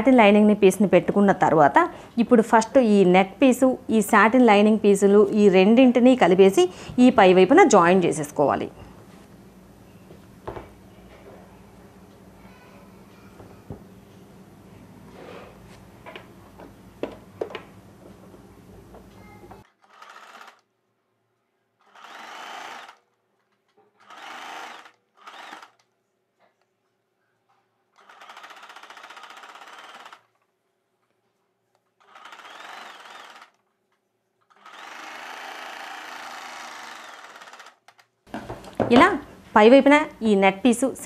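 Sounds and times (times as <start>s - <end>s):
sewing machine stitching: 19.7s - 20.6s, 21.8s - 23.0s, 24.0s - 25.8s, 28.0s - 30.4s, 32.0s - 33.6s, 34.5s - 38.0s.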